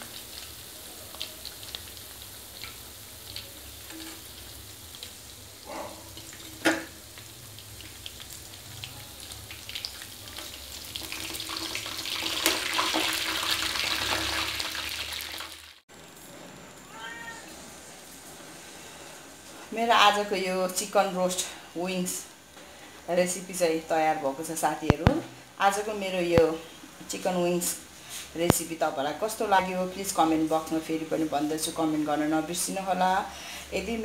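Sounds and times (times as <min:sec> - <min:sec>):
chicken frying in hot oil: 0:00.0 - 0:15.8.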